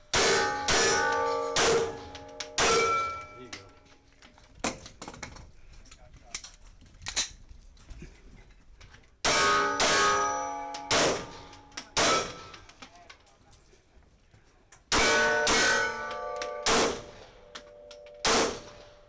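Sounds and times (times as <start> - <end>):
steel targets clanging: 0.0 - 4.6, 9.2 - 13.2, 14.9 - 19.0
pistol shots: 0.1 - 3.2, 9.2 - 12.6, 14.9 - 17.4, 18.2 - 19.0.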